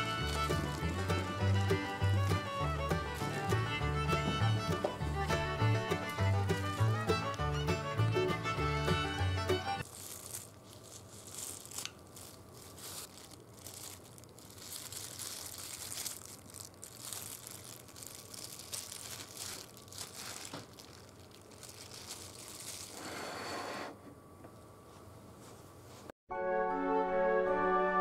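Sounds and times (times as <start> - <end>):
plastic bag crinkling and rustling: 0.0 - 3.6, 9.8 - 23.0.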